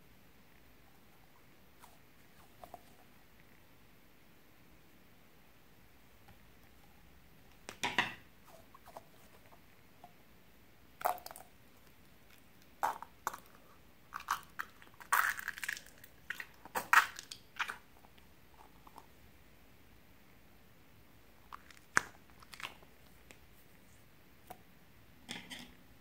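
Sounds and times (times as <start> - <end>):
crackling squishes of slime: 11.0 - 19.1, 21.4 - 23.4.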